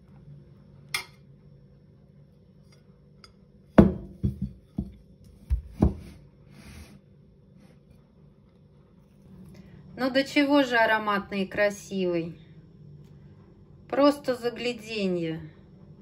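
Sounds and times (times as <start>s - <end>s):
plates knocking on wooden table: 3.8s - 6.1s.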